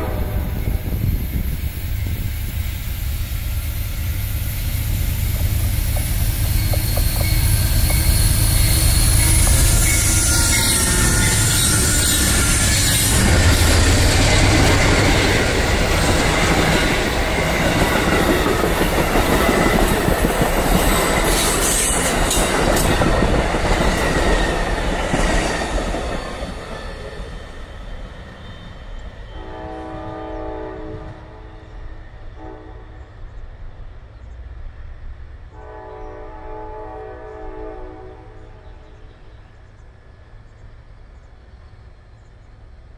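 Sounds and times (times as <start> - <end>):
train horn chord: 0.0 - 1.0, 29.3 - 31.8, 32.4 - 33.2, 35.5 - 39.2
diesel locomotive engine: 0.0 - 42.9
steel wheels rumbling on rail: 0.0 - 42.9.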